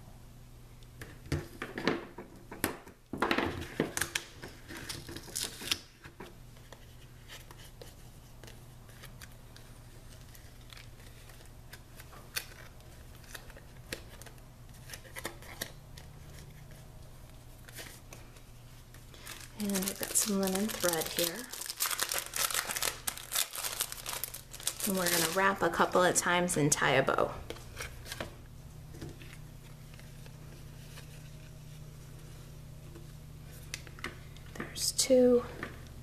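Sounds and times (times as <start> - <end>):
low steady hum: 0.0 - 36.0
tape rustling and tapping: 1.0 - 25.9.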